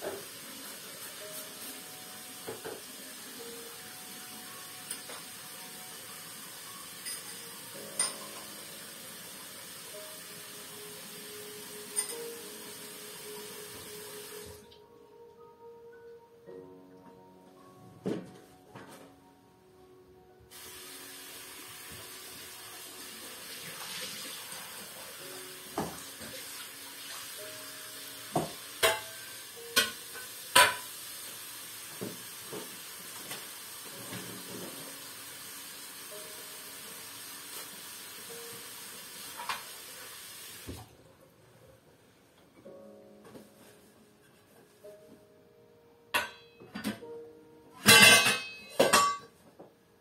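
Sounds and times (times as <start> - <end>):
running water hiss: 0.0 - 14.6, 20.5 - 40.9.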